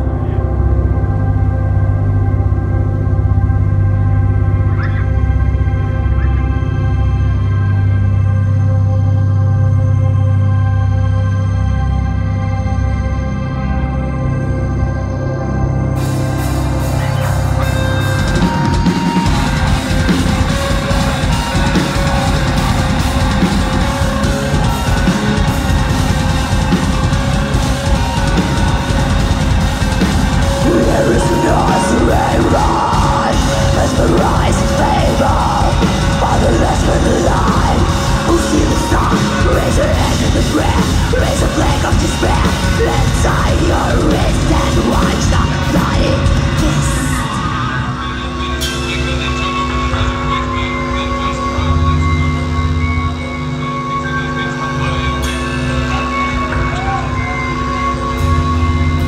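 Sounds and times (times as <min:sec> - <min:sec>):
bass guitar: 0:00.0 - 0:59.0
distorted electric guitars: 0:00.0 - 0:59.0
drum kit: 0:16.0 - 0:47.9
woman singing: 0:30.6 - 0:47.5.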